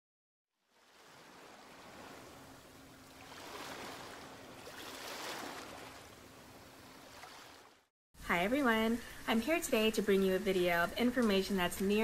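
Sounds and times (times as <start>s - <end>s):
ocean waves rushing: 0.7s - 7.8s.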